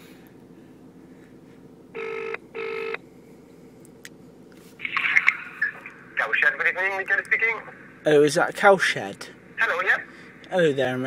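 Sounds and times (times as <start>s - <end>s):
telephone ringing tone: 2.0s - 3.0s.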